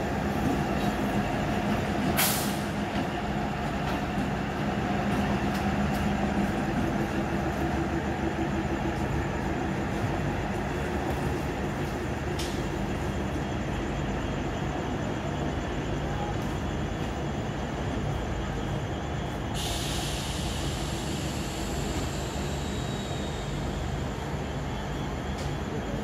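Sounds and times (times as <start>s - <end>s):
train engine hum and rolling: 0.0s - 26.0s
high hiss: 19.5s - 24.0s.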